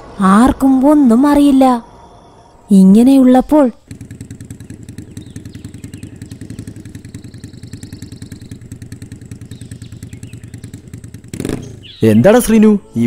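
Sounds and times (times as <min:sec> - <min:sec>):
motorcycle engine puttering: 0:03.8 - 0:12.6.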